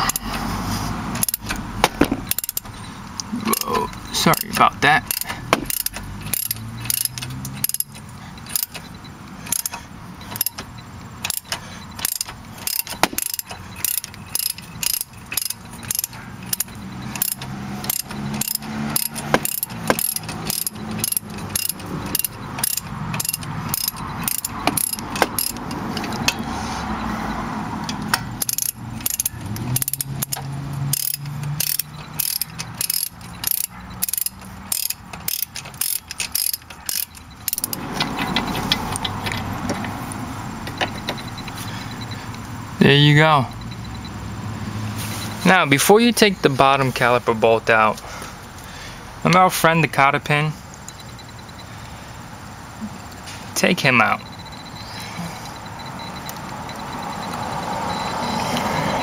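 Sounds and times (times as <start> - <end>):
ratchet wrench clicking: 0.0 - 42.6, 50.7 - 52.2.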